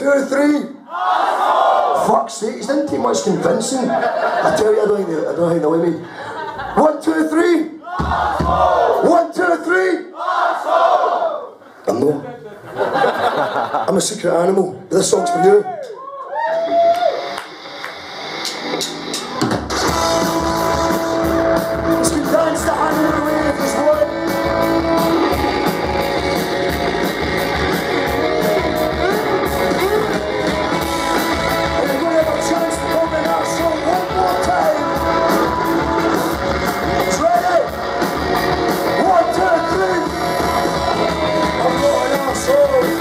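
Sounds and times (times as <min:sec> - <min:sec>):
steady drum beat: 0:08.0 - 0:08.8, 0:18.5 - 0:43.0
live rock band playing: 0:17.1 - 0:43.0.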